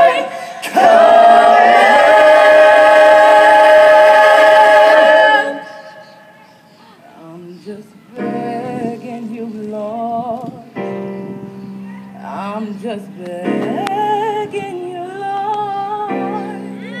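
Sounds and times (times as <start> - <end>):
musical theatre singing: 0.0 - 6.4.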